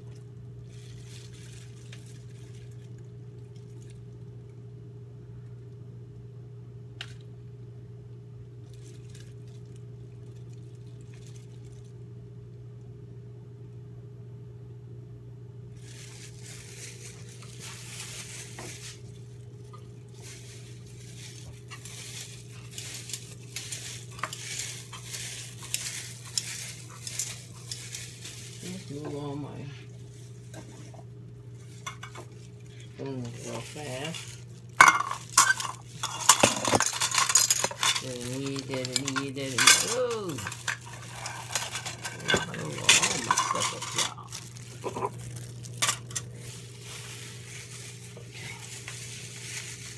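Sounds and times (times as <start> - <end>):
steady low hum: 0.0 - 49.9
spoons scraping in small bowls: 20.2 - 29.2, 31.6 - 45.2, 45.8 - 49.9.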